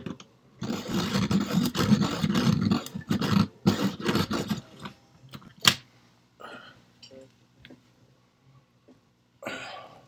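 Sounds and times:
pencil sharpener grinding: 0:00.6 - 0:04.9.

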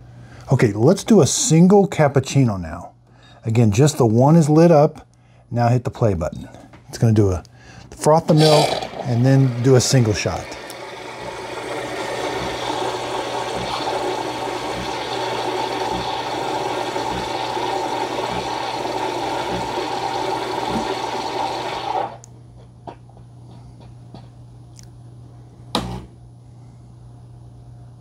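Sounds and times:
low machine hum: 0:00.0 - 0:28.0
milk frother rushing hiss: 0:08.3 - 0:22.2.

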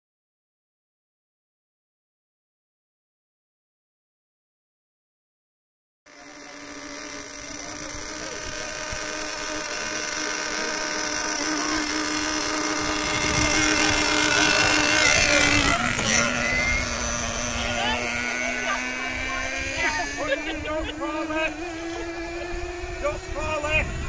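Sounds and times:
model boat engines buzzing: 0:06.1 - 0:24.0.

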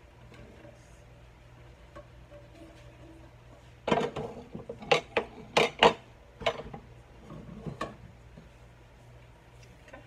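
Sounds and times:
pots and utensils clattering: 0:01.8 - 0:08.1.

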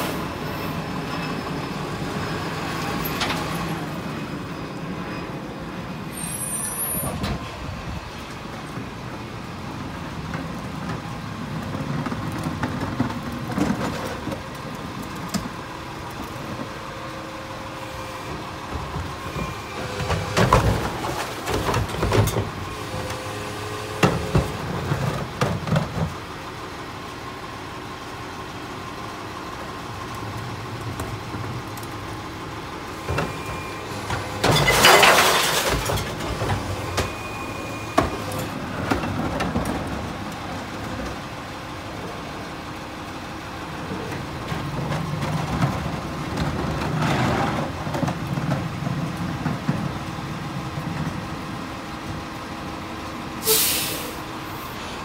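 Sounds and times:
garbage truck idling: 0:00.0 - 0:55.0
bottles and cans clattering: 0:34.4 - 0:36.2.

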